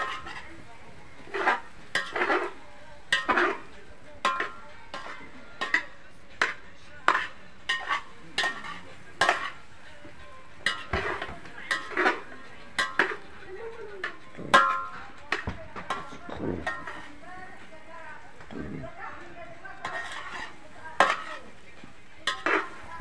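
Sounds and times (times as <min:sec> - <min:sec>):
metal spoon scraping cooking pot: 0:00.0 - 0:00.5, 0:01.2 - 0:09.7, 0:10.6 - 0:13.4, 0:14.0 - 0:17.3, 0:19.7 - 0:21.6, 0:22.2 - 0:23.0.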